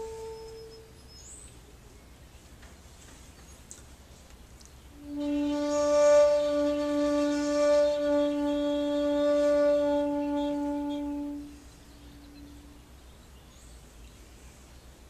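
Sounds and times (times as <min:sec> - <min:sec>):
bamboo flute long breathy note: 0:00.0 - 0:01.1, 0:05.0 - 0:12.9.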